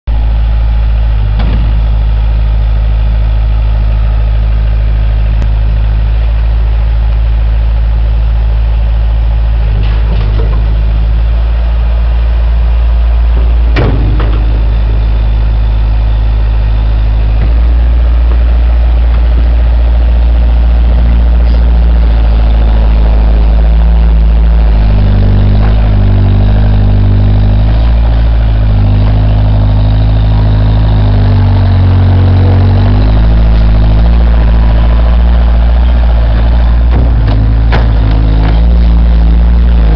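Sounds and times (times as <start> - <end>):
loader engine running: 0.0 - 39.9.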